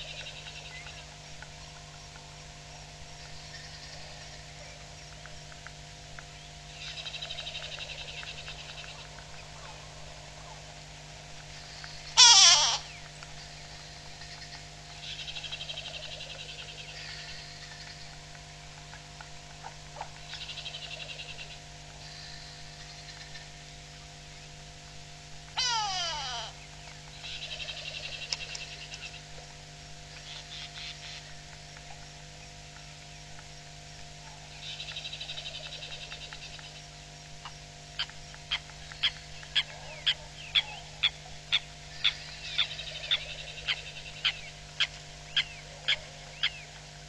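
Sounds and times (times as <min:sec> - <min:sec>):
nasal bird alarm call: 0:11.6 - 0:18.2, 0:25.6 - 0:29.2, 0:30.1 - 0:31.4, 0:37.4 - 0:46.8
high-pitched bird chatter: 0:25.6 - 0:26.5.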